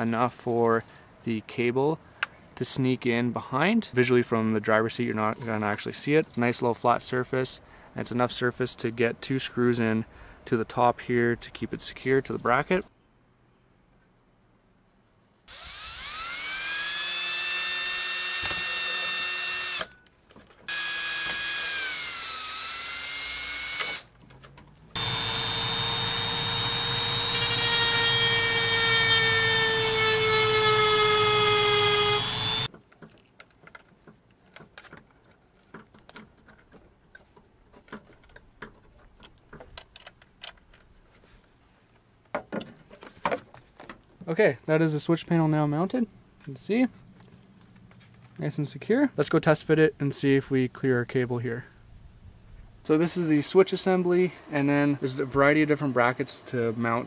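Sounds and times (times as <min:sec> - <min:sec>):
cordless power driver whining: 0:15.5 - 0:20.0, 0:20.7 - 0:24.1, 0:25.0 - 0:32.7.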